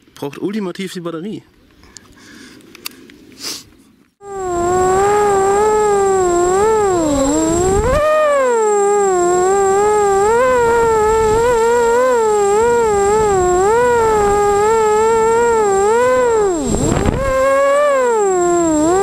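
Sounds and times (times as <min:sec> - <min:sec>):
quadcopter motors whining: 0:04.2 - 0:19.0.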